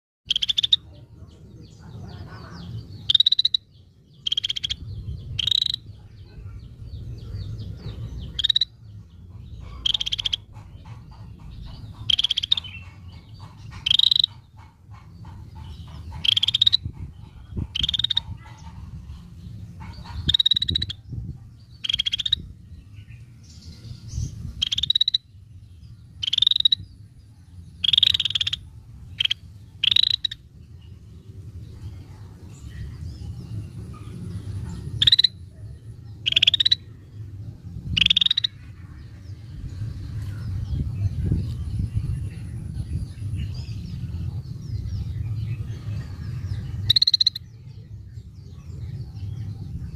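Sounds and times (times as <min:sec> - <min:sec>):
low background rumble: 0:00.7 - 0:49.9.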